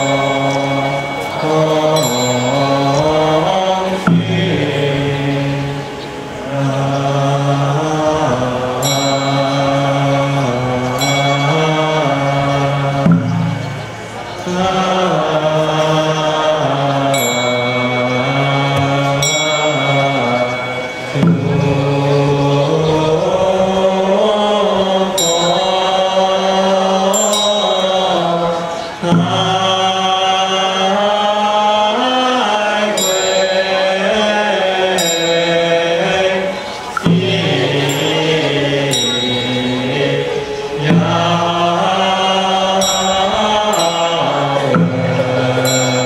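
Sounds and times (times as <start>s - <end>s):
small metal bell ringing: 0.0s - 3.7s, 8.8s - 14.8s, 17.1s - 22.1s, 27.1s - 29.1s, 33.0s - 36.7s, 37.3s - 46.0s
liturgical chanting: 0.0s - 46.0s.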